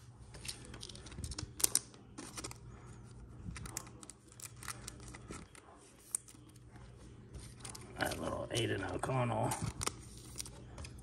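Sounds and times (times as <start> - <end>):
trading cards clicking and scraping: 3.5 - 6.7.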